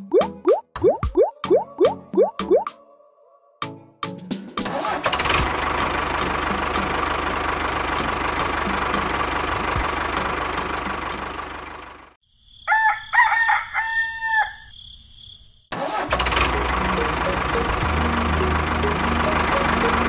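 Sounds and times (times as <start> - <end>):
rooster crowing: 12.6 - 14.8.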